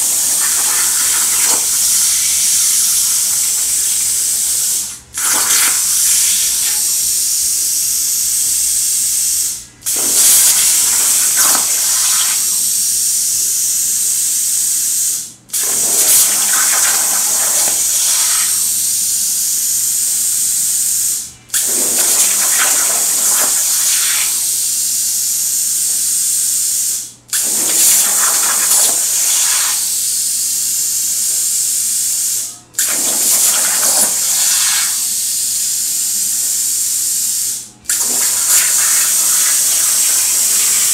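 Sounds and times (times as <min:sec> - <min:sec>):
plasma arc crackling: 0:00.0 - 0:08.9, 0:09.5 - 0:12.8, 0:15.8 - 0:19.0, 0:22.0 - 0:24.6, 0:27.5 - 0:30.0, 0:32.8 - 0:35.6, 0:37.4 - 0:40.9
plasma cutter hissing: 0:00.0 - 0:40.9.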